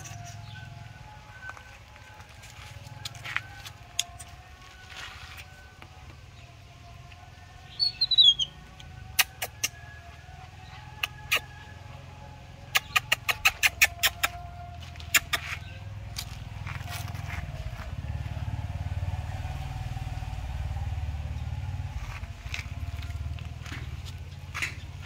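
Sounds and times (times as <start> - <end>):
engine running: 0.0 - 25.0.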